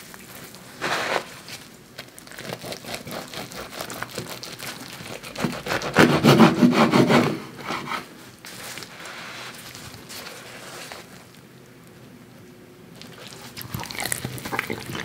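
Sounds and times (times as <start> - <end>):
knife sawing through crusty bread: 2.3 - 8.1.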